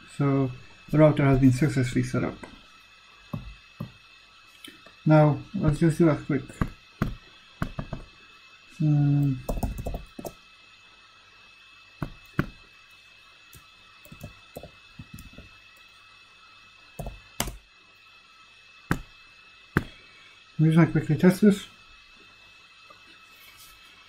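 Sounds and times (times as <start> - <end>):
computer keyboard typing: 9.4 - 10.3.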